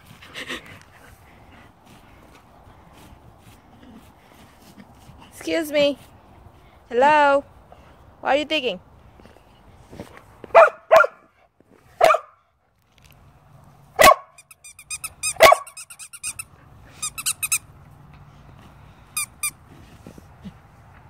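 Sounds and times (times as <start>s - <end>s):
dog barking: 10.5s - 11.2s, 12.0s - 12.4s, 14.0s - 14.4s, 15.3s - 15.8s
dog squeaking: 14.3s - 17.6s, 19.2s - 19.6s.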